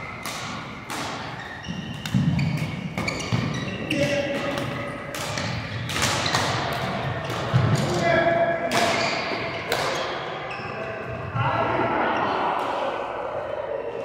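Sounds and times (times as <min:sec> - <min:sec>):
shoes squeaking on floor: 0:00.0 - 0:07.8, 0:08.9 - 0:11.3
rackets striking shuttlecock: 0:00.0 - 0:08.0, 0:08.7 - 0:10.3.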